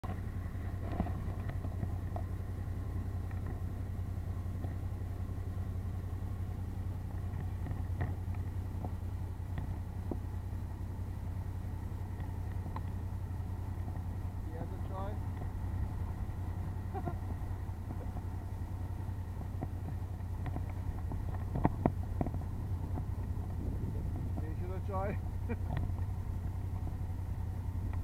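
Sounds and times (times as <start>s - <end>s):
motorcycle engine cruising: 0.0s - 28.0s
faint ticks: 12.1s - 13.0s.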